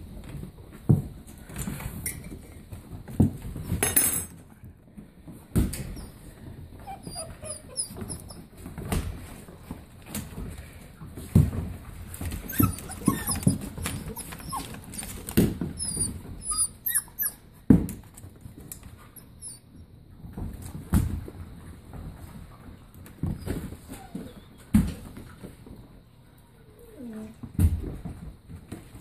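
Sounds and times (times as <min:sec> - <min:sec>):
puppies whining and yipping: 0:06.0 - 0:08.7, 0:12.2 - 0:17.6, 0:19.1 - 0:19.9, 0:23.2 - 0:24.8.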